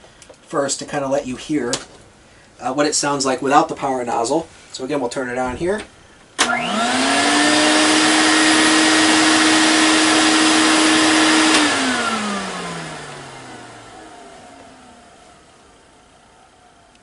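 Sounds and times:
vacuum switch click: 0:05.8 - 0:06.7
vacuum cleaner motor whine: 0:06.4 - 0:17.0.

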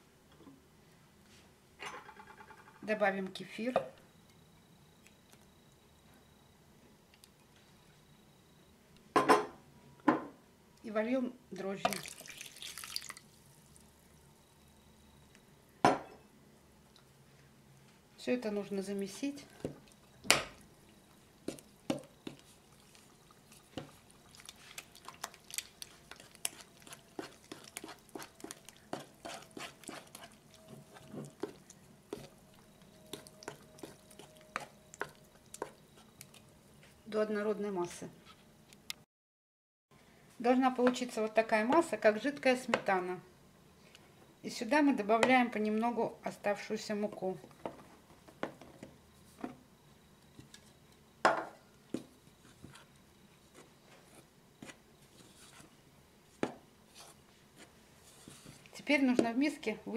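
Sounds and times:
spoon scraping bowl: 0:21.5 - 0:36.4, 0:52.4 - 0:55.8.

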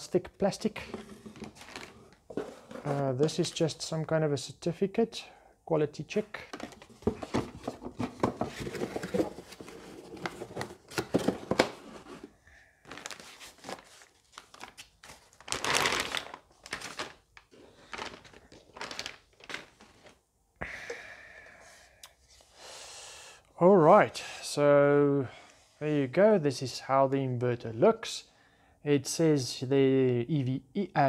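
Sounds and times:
plastic bag crinkling: 0:01.3 - 0:02.2, 0:12.8 - 0:20.2.

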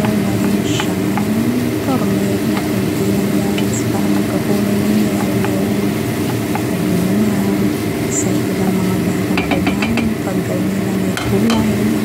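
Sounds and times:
steady low hum: 0:00.0 - 0:12.0
wooden spatula stirring in pan: 0:02.0 - 0:08.2.

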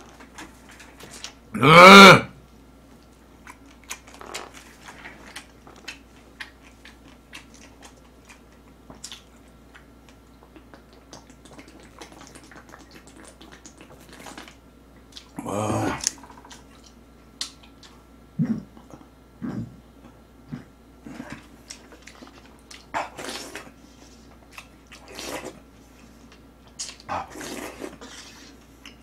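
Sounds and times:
person grunting: 0:01.6 - 0:02.4, 0:15.4 - 0:16.0
chewing and swallowing: 0:02.9 - 0:29.0.

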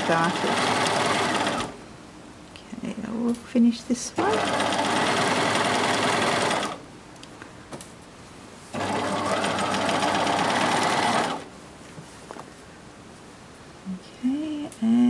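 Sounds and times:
sewing machine stitching: 0:00.0 - 0:01.8, 0:04.2 - 0:06.8, 0:08.7 - 0:11.5.

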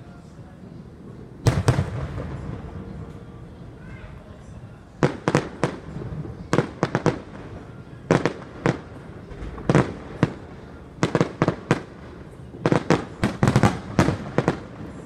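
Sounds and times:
fireworks bangs: 0:01.4 - 0:03.4, 0:05.0 - 0:15.0.

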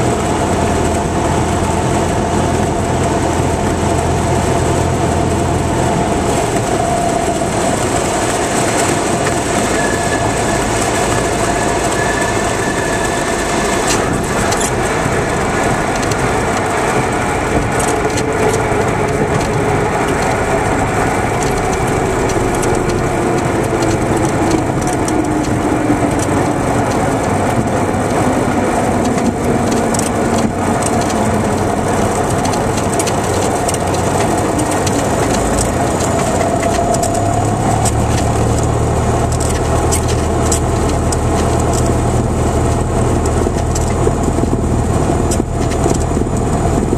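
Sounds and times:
propeller plane engine idling: 0:00.0 - 0:46.9
wheels rumbling on runway: 0:00.0 - 0:46.9.

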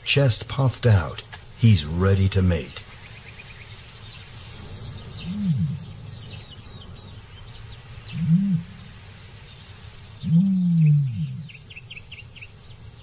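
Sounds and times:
faint high chirping: 0:02.6 - 0:13.0
ostrich booming calls: 0:04.8 - 0:09.2, 0:10.2 - 0:11.9.

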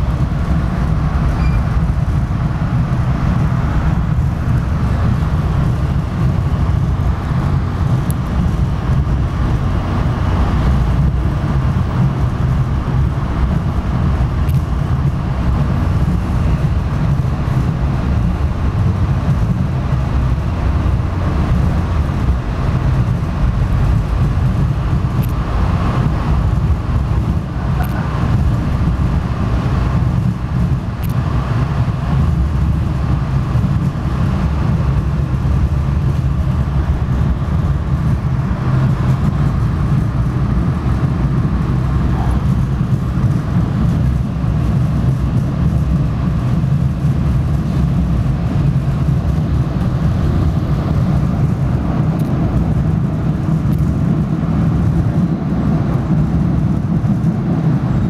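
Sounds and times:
train rumbling along track: 0:00.0 - 0:58.0.

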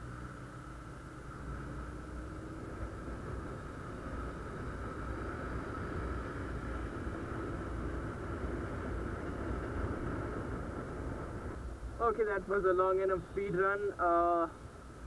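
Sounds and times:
motorcycle engine accelerating: 0:00.0 - 0:11.6
wind and road rush: 0:00.0 - 0:15.0.

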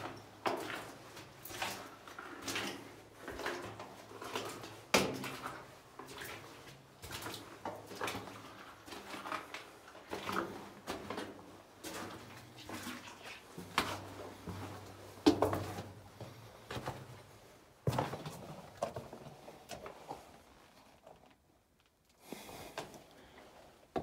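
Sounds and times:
footsteps crunching on rocky floor: 0:13.6 - 0:19.3.

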